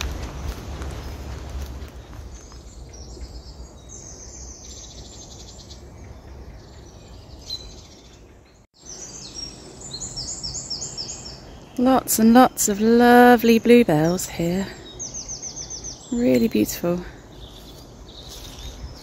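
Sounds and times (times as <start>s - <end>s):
wind rumbling on microphone: 0.0s - 8.0s, 14.8s - 19.0s
songbirds singing: 0.0s - 19.0s.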